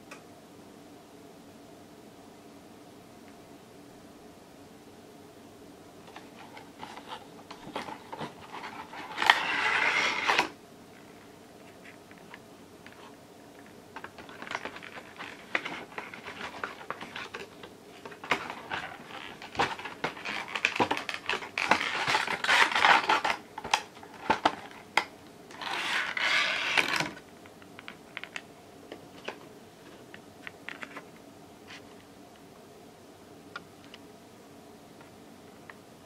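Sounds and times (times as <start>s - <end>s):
plastic packaging crinkling: 6.1s - 10.5s, 14.0s - 27.2s
continuous plastic crackling: 14.0s - 24.8s.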